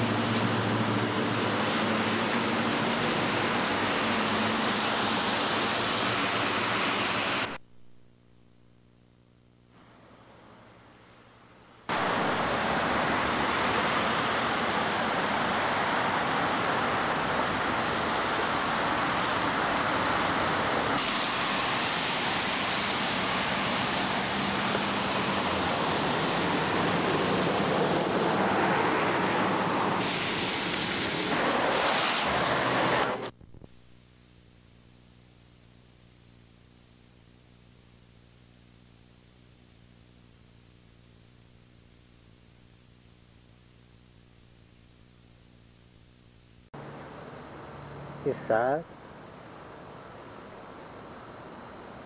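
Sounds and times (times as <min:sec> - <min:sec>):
loud rushing noise: 0:11.9 - 0:33.3.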